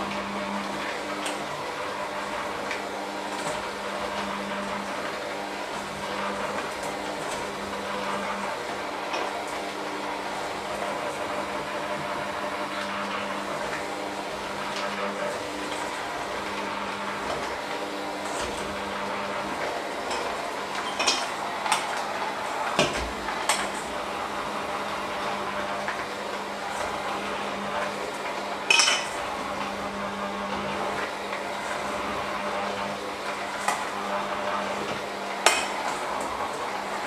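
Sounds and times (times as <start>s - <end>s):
electric hand mixer running: 0.0s - 37.0s
beaters clanking against metal bowl: 28.7s - 29.2s, 35.5s - 35.8s.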